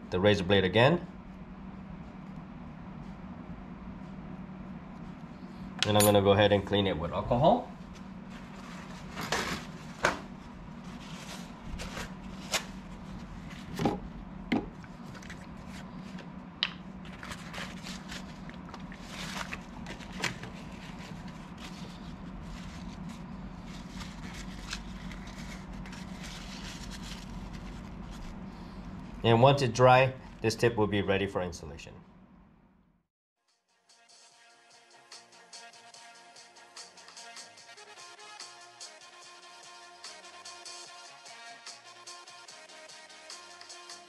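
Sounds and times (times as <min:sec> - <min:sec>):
steady low hum: 0:00.0 - 0:33.1
paper towel rustling: 0:07.9 - 0:13.9, 0:14.9 - 0:16.3, 0:17.0 - 0:28.6.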